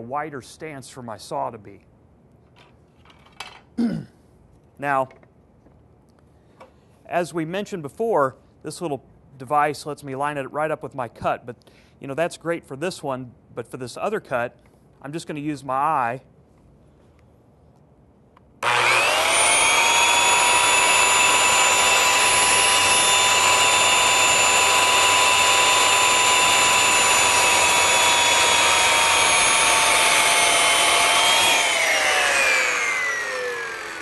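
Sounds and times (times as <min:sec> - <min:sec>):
circular saw cutting wood: 0:18.6 - 0:34.0.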